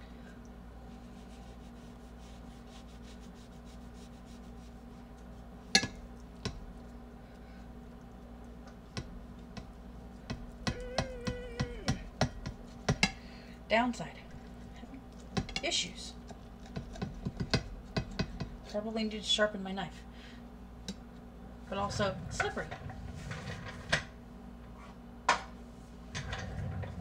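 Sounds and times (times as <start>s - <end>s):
low hum: 20.5s - 24.7s.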